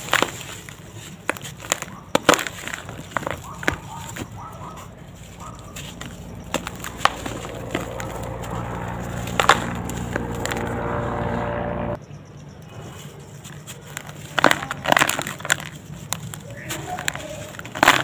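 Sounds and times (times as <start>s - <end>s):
grit trickling: 0.0s - 11.0s
cement lumps crunching: 0.0s - 11.2s, 13.0s - 18.0s
steady low hum: 2.8s - 12.9s.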